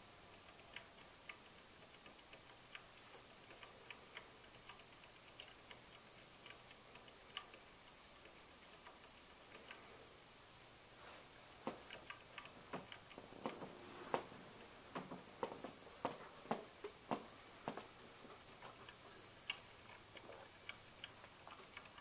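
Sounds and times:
faint hiss: 0:00.0 - 0:22.0.

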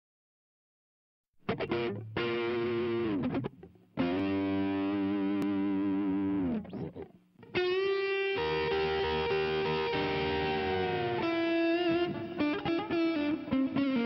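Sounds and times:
distorted electric guitar: 0:01.4 - 0:14.0.

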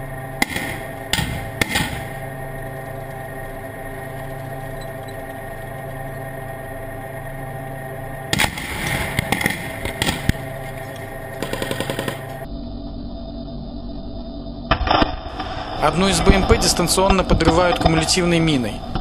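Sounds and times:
tank engine running: 0:00.0 - 0:12.5
loud explosion blast: 0:00.4 - 0:02.2
rapid gunfire burst: 0:00.4 - 0:02.3, 0:08.3 - 0:10.8, 0:11.4 - 0:12.5
scattered bangs and clatter: 0:00.4 - 0:02.3, 0:08.3 - 0:10.8.

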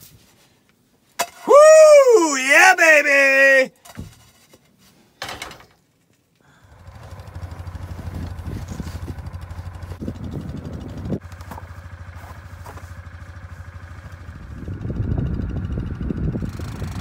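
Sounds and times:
atv engine idling: 0:06.6 - 0:17.0.

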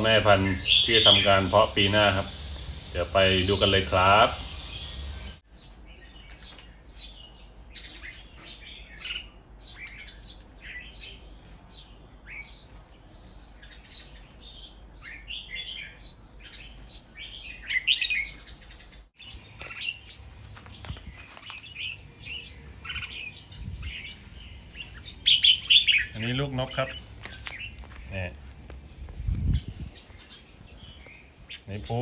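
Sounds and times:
several birds chirping: 0:00.0 - 0:32.0
bird singing whistled notes: 0:00.4 - 0:02.6, 0:03.4 - 0:20.1.

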